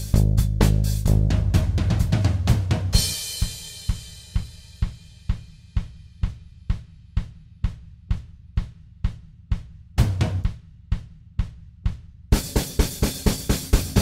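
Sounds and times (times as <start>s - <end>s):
sparse steady drum beat: 0.0s - 14.0s
cymbal crash: 3.0s - 4.8s.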